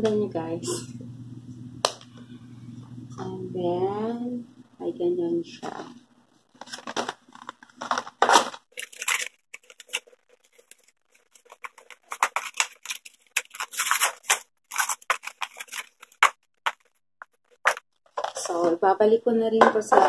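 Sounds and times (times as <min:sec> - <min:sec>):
cardboard box being torn open: 0:08.2 - 0:10.7, 0:11.4 - 0:16.2.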